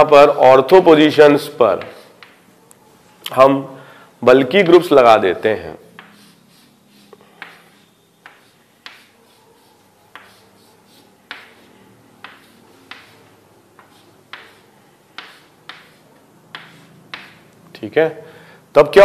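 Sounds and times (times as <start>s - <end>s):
pen tapping on paper: 1.8s - 2.4s, 8.3s - 9.1s, 11.3s - 11.6s, 12.2s - 13.2s, 13.8s - 17.4s.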